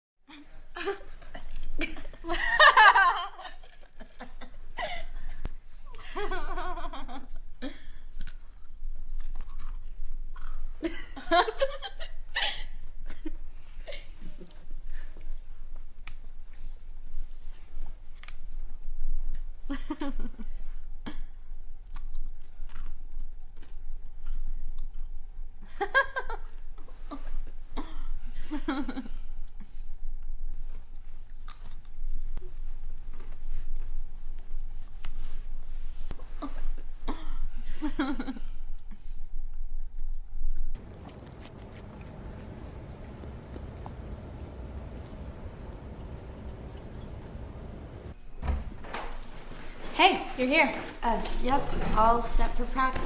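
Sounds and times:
young women laughing: 0.3 - 7.3, 10.8 - 14.5.

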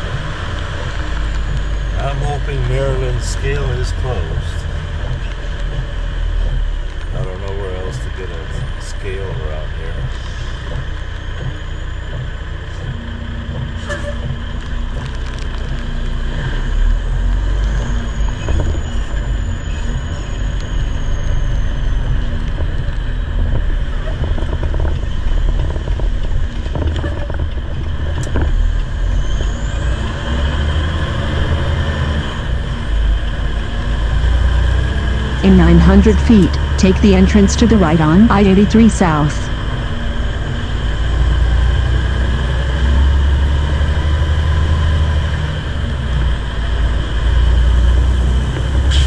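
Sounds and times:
truck diesel engine rumble: 0.0 - 49.0
steady low hum: 35.3 - 40.6.

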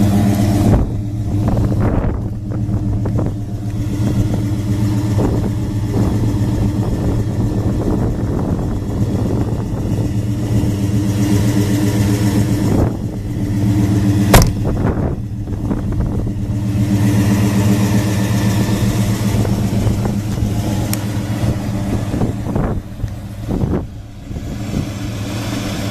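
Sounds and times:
car engine idling: 0.0 - 25.9
car door shutting: 14.2 - 15.1.

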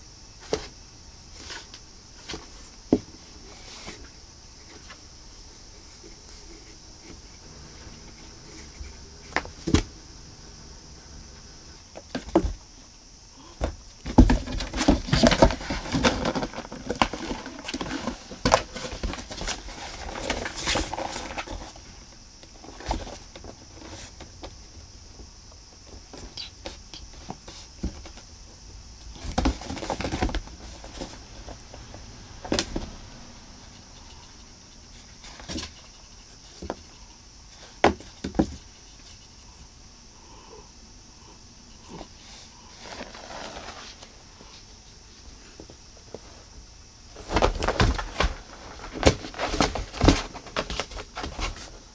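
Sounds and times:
rustling and knocks: 13.5 - 24.6, 29.1 - 33.0, 47.1 - 51.9
cat scraping cardboard box: 41.9 - 44.6.

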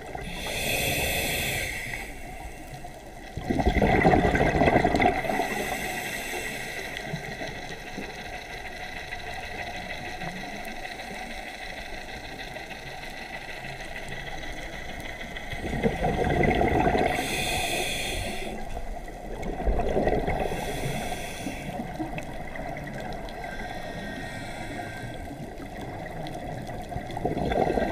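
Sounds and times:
steady underwater hiss: 0.0 - 27.9
diver breathing through regulator: 0.1 - 3.1, 4.6 - 7.5, 15.4 - 19.2, 19.8 - 22.4, 23.2 - 25.8
exhaled bubbles rushing: 3.4 - 5.6, 15.5 - 17.3, 19.2 - 20.7, 25.4 - 27.9.

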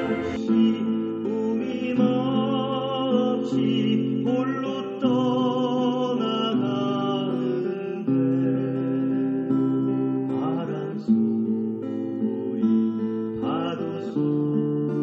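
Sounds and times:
choir accompaniment: 0.0 - 0.8
church choir singing: 0.0 - 0.9.

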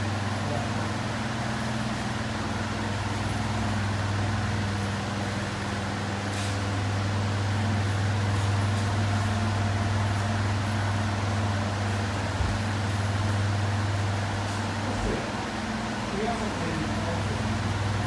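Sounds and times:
electric fan humming: 0.0 - 18.0.

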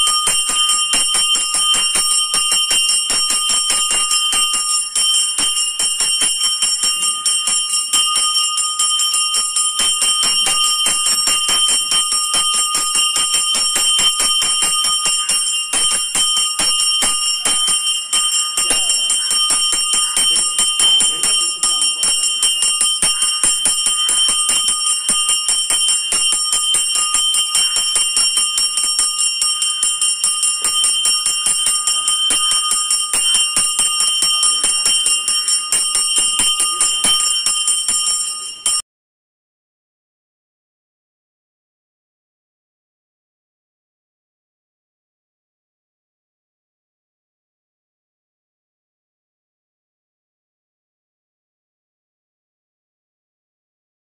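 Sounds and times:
bells ringing fast: 0.0 - 38.8.

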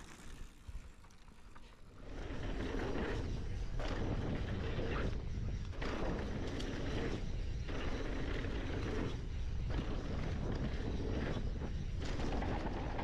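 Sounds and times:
bike tyres crunching over dirt: 0.0 - 3.2
wind buffeting microphone: 2.0 - 13.0.

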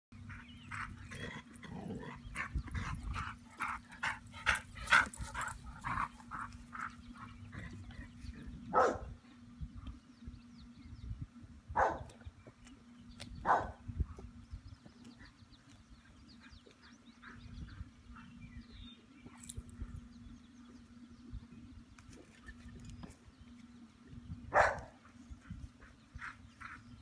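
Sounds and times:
small dog barking: 8.7 - 9.1, 11.8 - 12.1, 13.4 - 13.8, 24.5 - 25.0.

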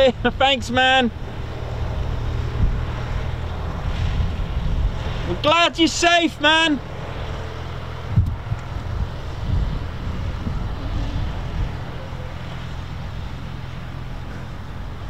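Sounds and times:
tow tractor engine humming: 0.0 - 15.0.

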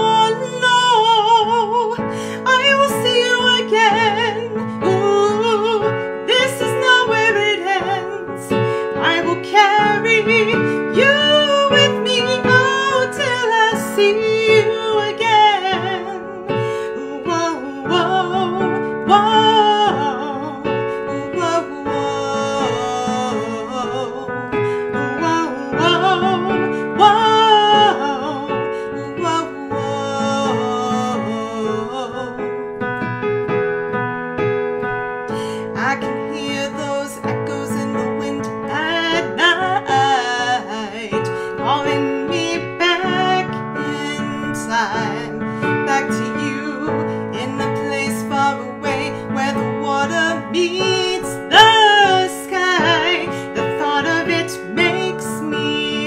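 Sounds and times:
woman singing: 0.0 - 33.2, 35.2 - 56.0
piano accompaniment: 0.0 - 56.0.

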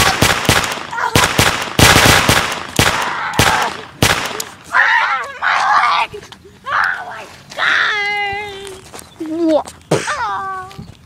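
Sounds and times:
gunshots: 0.0 - 4.6
child crying: 0.9 - 1.2, 4.7 - 8.8.

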